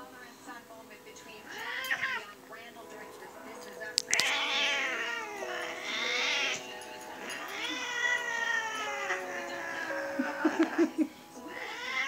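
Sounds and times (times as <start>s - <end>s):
cat yowling meows: 1.5s - 2.2s, 4.1s - 10.9s, 11.5s - 12.0s
sharp click: 4.0s - 4.4s.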